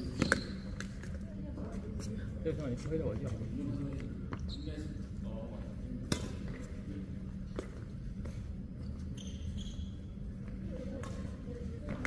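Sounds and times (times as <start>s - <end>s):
low hum of a large hall: 0.0s - 12.0s
brief high squeak: 9.1s - 10.0s.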